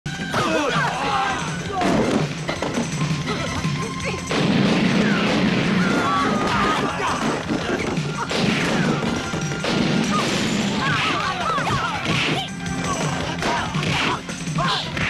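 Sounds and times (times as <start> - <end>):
background music: 0.1 - 15.0
punch and kick hits: 4.3 - 15.0.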